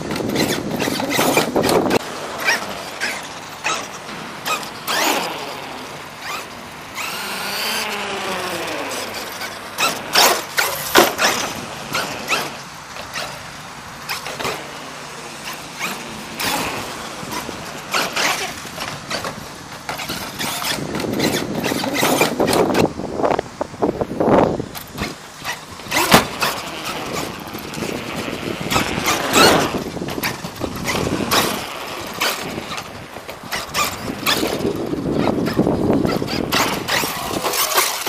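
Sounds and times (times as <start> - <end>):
truck scrubbing and knocking: 0.0 - 38.0
electric motor whining: 0.1 - 13.5, 25.0 - 38.0
tyres squealing: 0.1 - 23.0, 24.8 - 38.0.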